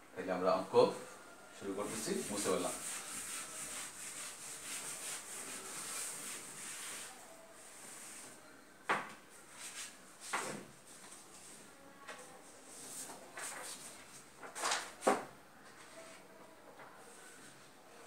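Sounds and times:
eraser wiping whiteboard: 0:01.7 - 0:07.2.

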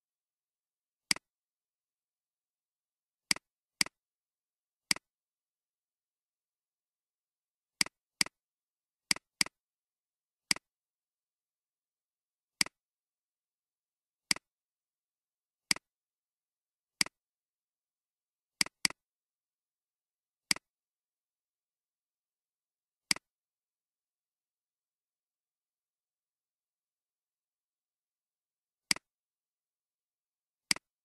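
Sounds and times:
computer mouse clicks: 0:01.1 - 0:01.3, 0:04.9 - 0:05.1, 0:10.5 - 0:10.7, 0:18.6 - 0:19.0, 0:20.5 - 0:20.7, 0:23.1 - 0:23.3, 0:28.9 - 0:29.1, 0:30.7 - 0:30.9.

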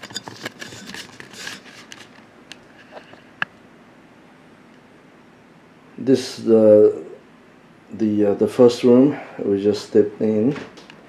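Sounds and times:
low room hiss: 0:00.0 - 0:11.0.

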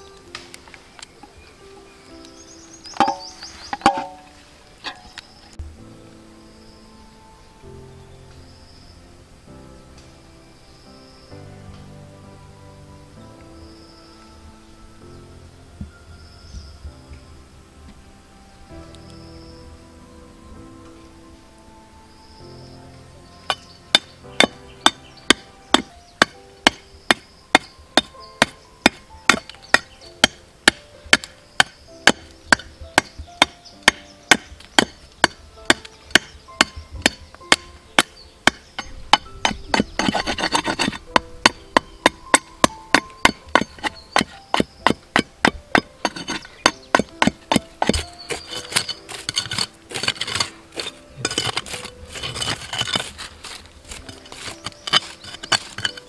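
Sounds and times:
knife chopping wooden stick: 0:25.3 - 0:56.0
rustling scrape: 0:38.8 - 0:41.2, 0:43.6 - 0:56.0.

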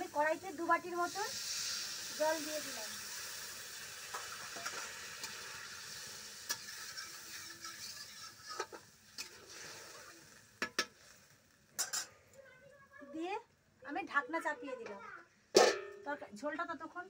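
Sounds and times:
curry sizzling in a pan: 0:00.0 - 0:13.3
metal spatula scraping a pan: 0:01.4 - 0:11.2.

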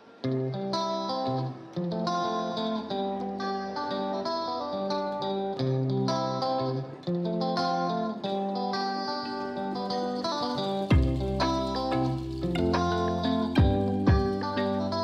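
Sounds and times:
plucked guitar melody: 0:00.0 - 0:15.0
low bass notes: 0:10.9 - 0:14.4.

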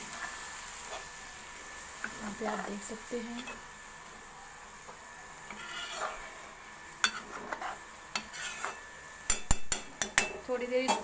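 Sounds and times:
ladle scraping a metal pan: 0:05.5 - 0:06.3, 0:07.0 - 0:08.9.

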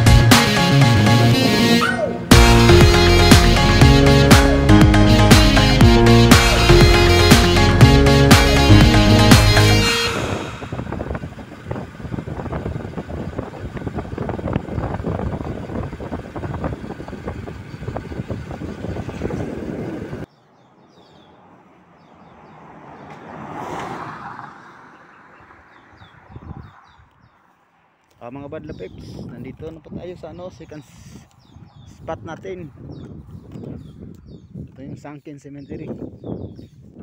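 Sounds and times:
vehicle road noise: 0:00.0 - 0:34.7
birds chirping: 0:00.0 - 0:37.0
vehicle passing: 0:18.0 - 0:28.1.

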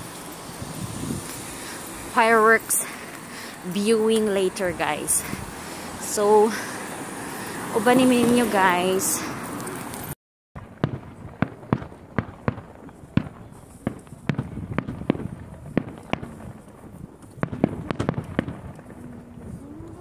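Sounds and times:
fireworks bursting with sharp bangs: 0:09.2 - 0:20.0.

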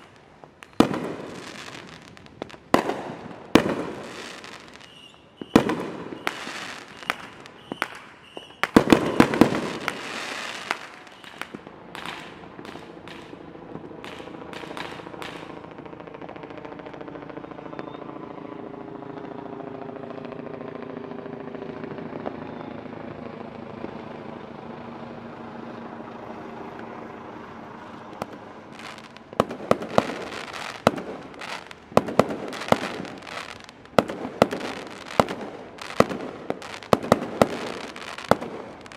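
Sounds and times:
fireworks cracks and bangs: 0:00.0 - 0:18.0, 0:26.6 - 0:38.9.

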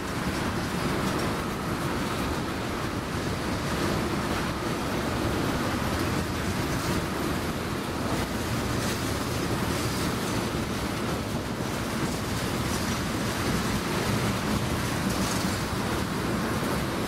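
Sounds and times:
faint rail clicks: 0:00.0 - 0:02.4, 0:08.1 - 0:16.8
train rumbling on rails: 0:00.0 - 0:17.0.

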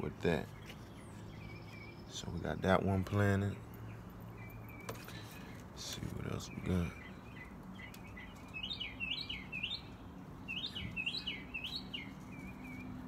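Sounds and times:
songbird whistling: 0:06.5 - 0:13.0.

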